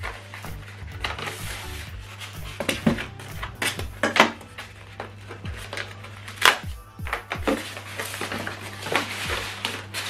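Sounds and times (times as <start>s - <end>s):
foam scraping and rustling: 0.0s - 6.6s, 7.2s - 10.0s
music with deep bass beat: 0.0s - 10.0s
polystyrene foam snapping: 0.0s - 10.0s.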